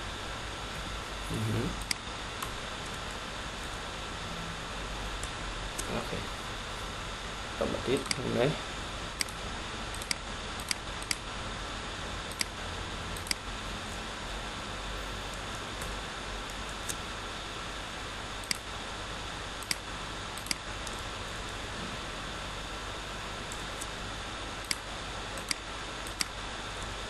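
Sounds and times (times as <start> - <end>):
steady background hiss: 0.0 - 27.0
computer mouse clicking: 1.8 - 2.5, 7.9 - 8.4, 9.2 - 11.2, 12.3 - 12.6, 13.2 - 13.4, 18.4 - 18.7, 19.6 - 19.8, 20.4 - 21.0, 24.6 - 26.9.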